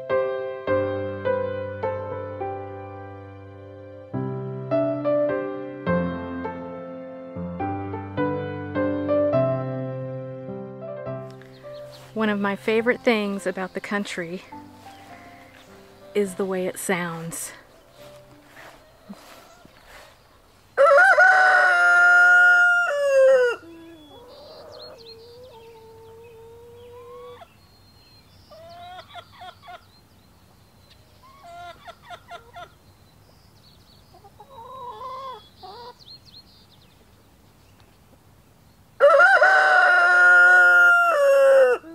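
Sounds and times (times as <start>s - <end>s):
chickens clucking: 13.0s - 27.6s, 28.5s - 29.9s, 30.9s - 32.8s, 34.1s - 36.2s
rooster crowing: 18.6s - 19.8s, 20.8s - 27.4s, 39.0s - 41.9s.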